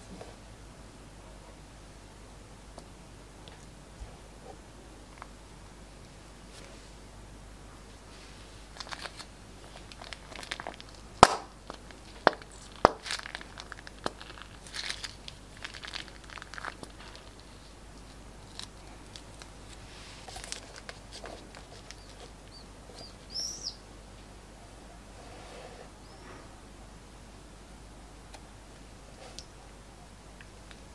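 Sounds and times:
plastic bag crinkling: 8.6 - 23.4.

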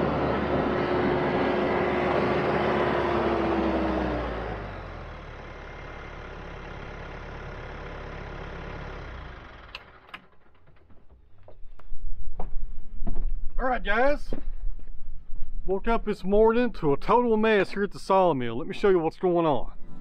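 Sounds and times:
tractor diesel engine running: 0.0 - 12.0
engine whine: 0.0 - 13.1.

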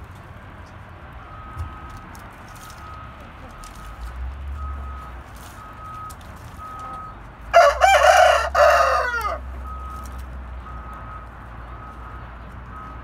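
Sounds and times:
rooster crowing: 7.5 - 9.5.

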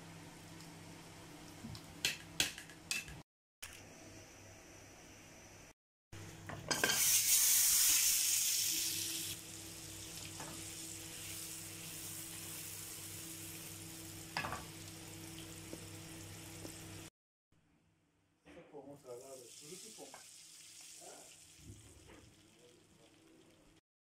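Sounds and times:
butter sizzling in pan: 6.7 - 17.1, 19.4 - 23.7.

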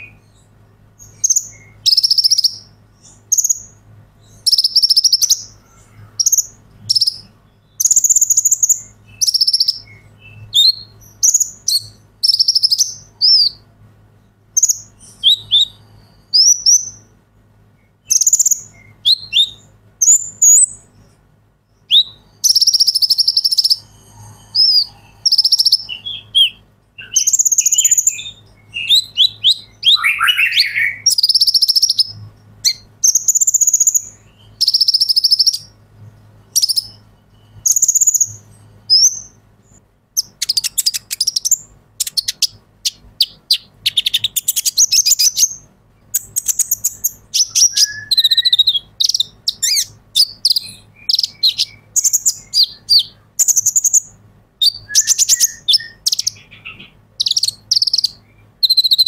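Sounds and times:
sunbird singing: 0.0 - 59.0.

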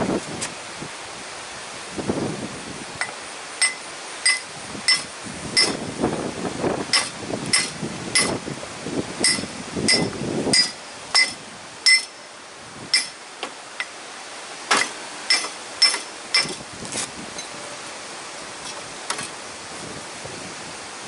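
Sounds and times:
hammer striking steel: 3.6 - 5.8, 6.9 - 8.4, 9.2 - 12.2, 12.9 - 13.2, 14.7 - 16.6.

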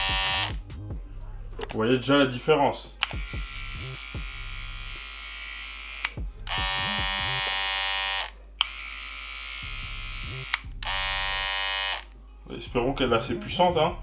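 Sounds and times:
hair trimmer buzzing: 0.0 - 0.6, 3.0 - 12.1
trimmer switch clicks: 3.0 - 3.6.

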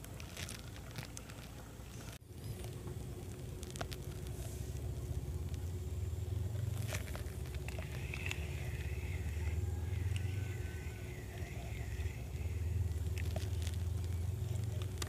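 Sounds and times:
steady low rumble: 0.0 - 15.0
fishing reel whirring: 6.8 - 15.0.

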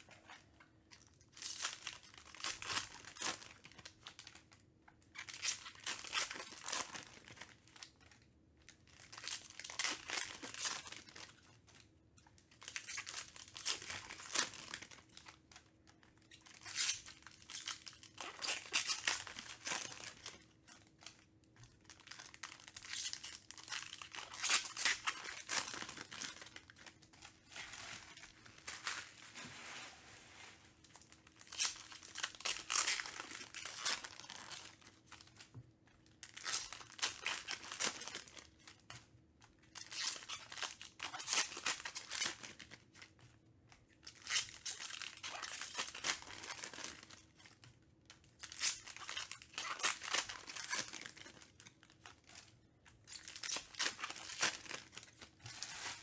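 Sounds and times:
foil wrappers tearing and crinkling: 16.3 - 29.8, 30.4 - 35.4, 36.2 - 38.9, 39.7 - 43.0, 44.0 - 47.6, 48.4 - 52.5, 53.1 - 56.0.

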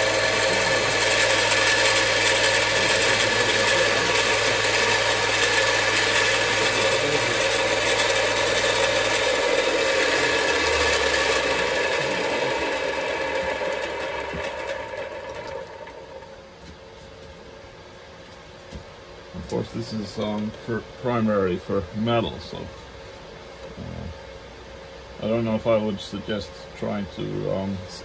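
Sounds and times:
motor winding down: 0.0 - 16.4
grinder motor humming: 0.0 - 16.8.

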